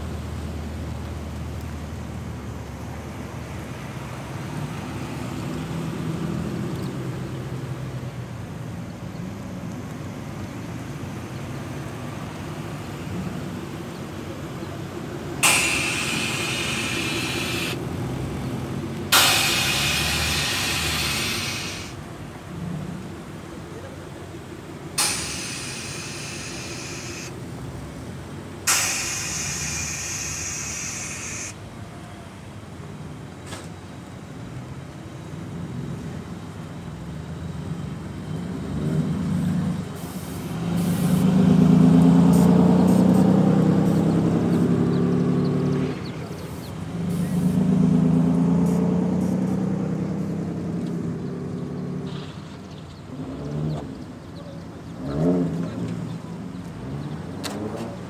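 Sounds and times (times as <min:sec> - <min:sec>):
cars running at low speed: 0:00.0 - 0:58.0
air suspension hissing: 0:15.4 - 0:17.9, 0:19.1 - 0:22.0, 0:25.0 - 0:27.4, 0:28.6 - 0:31.6, 0:40.0 - 0:41.3.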